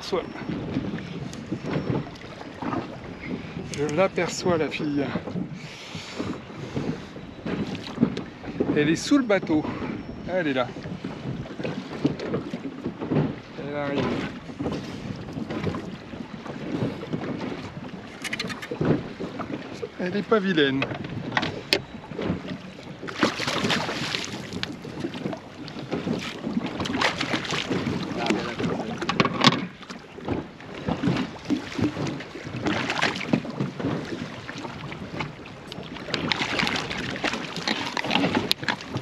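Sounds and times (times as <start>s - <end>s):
water slapping against boat: 0.0s - 39.0s
wind buffeting microphone: 0.0s - 39.0s
fish thrashing at surface: 23.1s - 24.6s.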